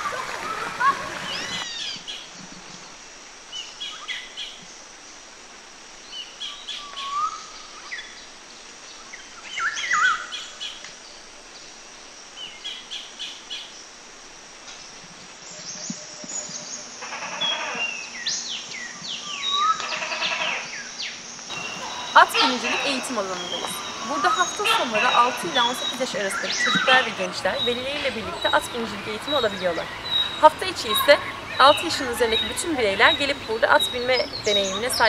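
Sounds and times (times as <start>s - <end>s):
small birds chirping and singing: 21.5s - 35.0s.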